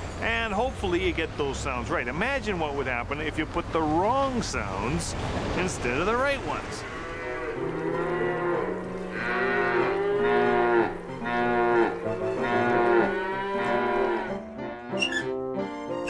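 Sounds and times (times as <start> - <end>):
cattle mooing: 6.7 - 15.0.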